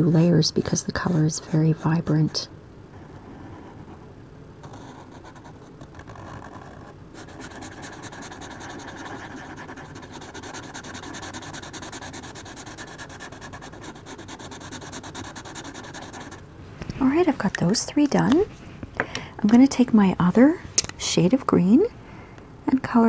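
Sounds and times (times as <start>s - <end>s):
marker scratching on paper: 3.0s - 4.0s, 4.6s - 16.4s.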